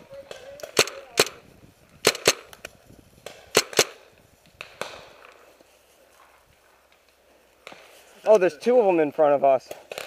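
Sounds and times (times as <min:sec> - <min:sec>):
paintball marker shots: 0:00.2 - 0:01.4, 0:02.0 - 0:05.4.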